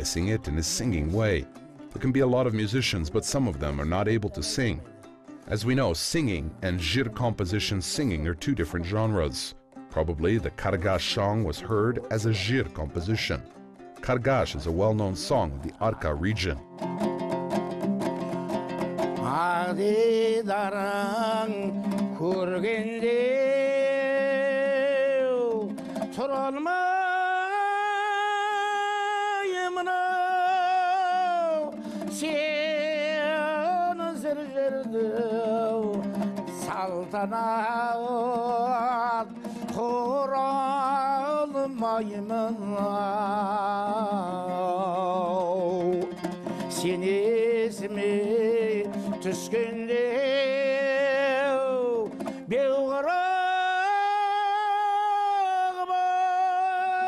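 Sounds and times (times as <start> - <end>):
man singing with vibrato: 0.0 - 9.3, 19.2 - 57.0
strummed lute: 0.0 - 57.0
singer breathing: 25.8 - 26.1, 31.7 - 32.2, 39.3 - 39.7, 46.4 - 46.7, 48.9 - 49.2, 52.1 - 52.5.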